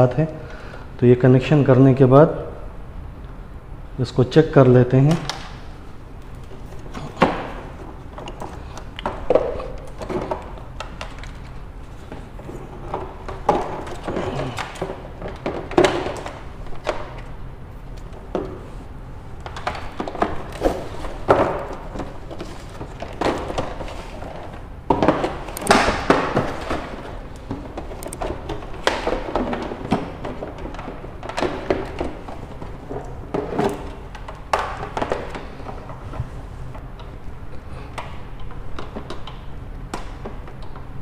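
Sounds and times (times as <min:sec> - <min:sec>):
plastic handling knocks and thuds: 0:06.3 - 0:17.2, 0:19.4 - 0:36.3.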